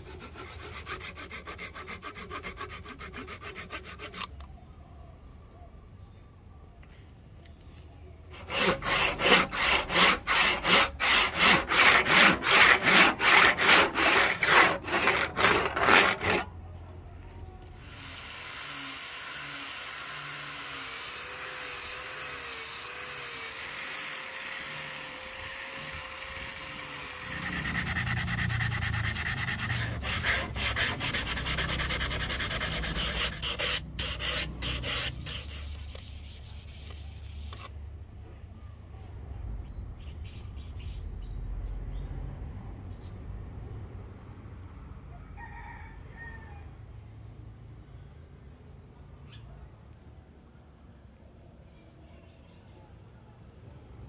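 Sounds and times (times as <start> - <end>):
angle grinder sanding: 0.0 - 4.3, 8.4 - 16.5, 17.8 - 37.7
hand sanding: 0.0 - 4.3, 8.4 - 16.5, 17.8 - 37.7
hand tool rasping wood: 0.0 - 4.3, 8.4 - 16.5, 17.8 - 37.7.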